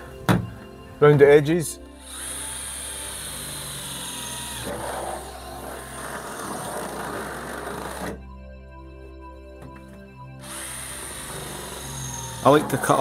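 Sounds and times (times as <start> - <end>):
cordless drill whining: 2.0 - 8.2, 10.4 - 13.0.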